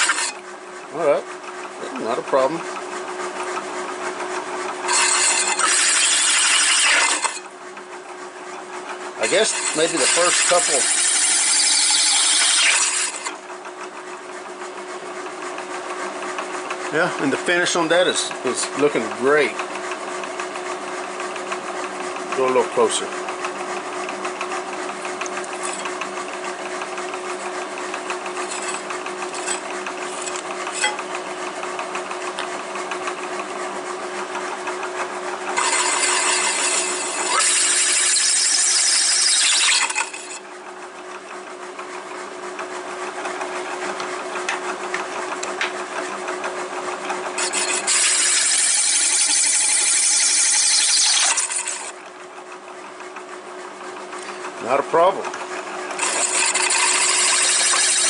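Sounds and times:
drill bit cutting metal: 0.0 - 0.4, 4.8 - 7.5, 9.2 - 13.4, 25.5 - 26.0, 28.1 - 31.1, 35.5 - 40.4, 47.4 - 52.0, 55.9 - 58.0
motor hum: 0.0 - 58.0.

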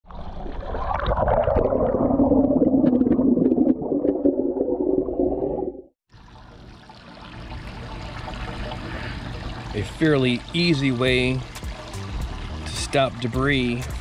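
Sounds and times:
underwater churning and bubbling: 0.1 - 13.8
faint water trickle: 6.1 - 14.0.

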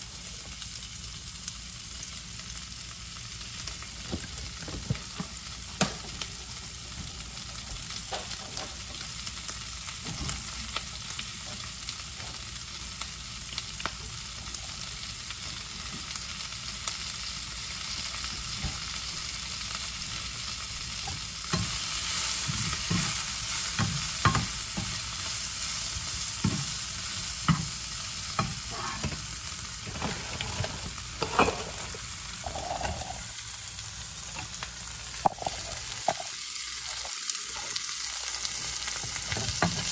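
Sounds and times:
food sizzling in a frying pan: 0.0 - 39.9
spatula knocking and scraping pan: 22.4 - 25.0, 29.9 - 32.0.

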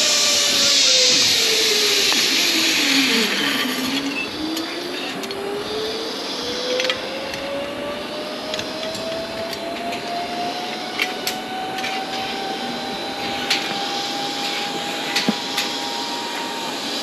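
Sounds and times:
steady hiss: 0.0 - 7.2, 12.0 - 17.0
zip-line pulleys whirring: 0.0 - 17.0.

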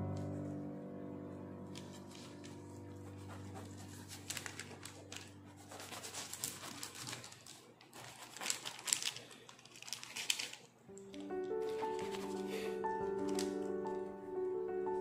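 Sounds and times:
soft piano music: 0.0 - 5.8, 10.9 - 15.0
knife crunching through crust: 5.6 - 9.2.

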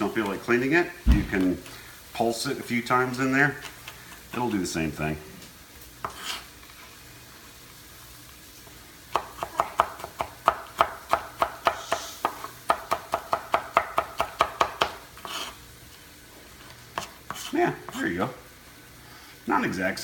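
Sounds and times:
knife chopping nuts: 9.1 - 15.5.

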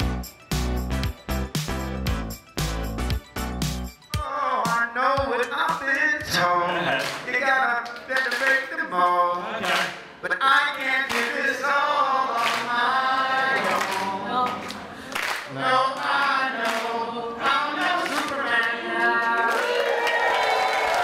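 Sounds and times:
men singing through pa: 5.1 - 19.5.

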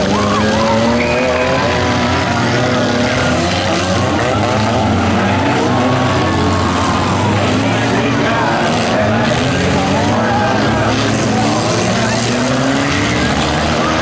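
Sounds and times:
racing car engines revving: 0.0 - 14.0.

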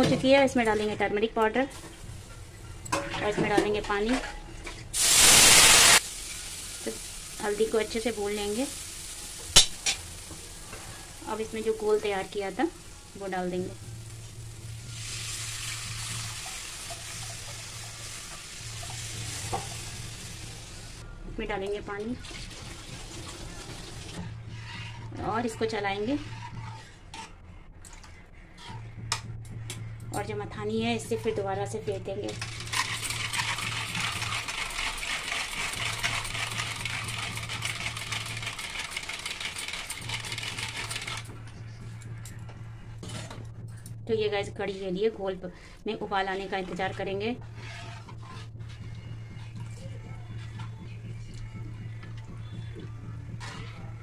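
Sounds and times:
batter pouring into hot oil: 5.0 - 10.3
whisk splashing batter: 32.4 - 41.2.

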